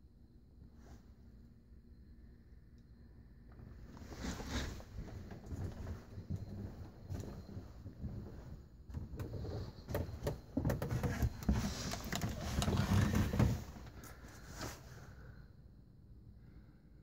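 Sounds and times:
rustling handling noise: 3.9 - 15.0.

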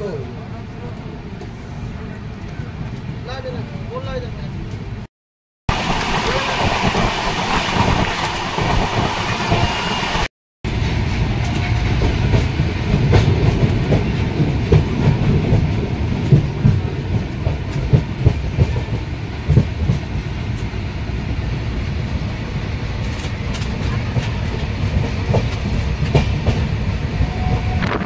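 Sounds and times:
train wheels clattering over rail joints: 23.0 - 26.8.

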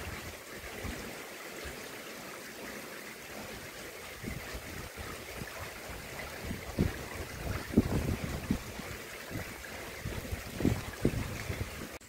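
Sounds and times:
rain falling: 0.0 - 12.0
wind buffeting microphone: 4.1 - 12.0.

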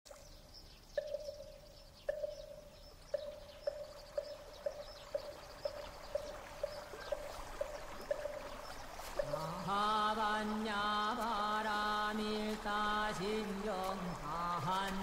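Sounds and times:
faint bird chirps: 0.1 - 9.7.

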